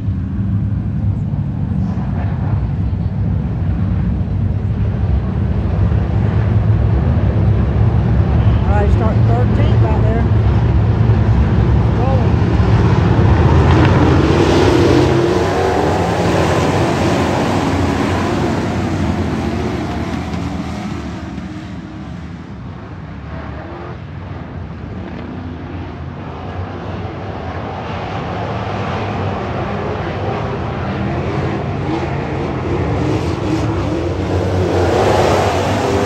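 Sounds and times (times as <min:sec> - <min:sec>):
race car engines running hard: 0:00.0 - 0:36.0.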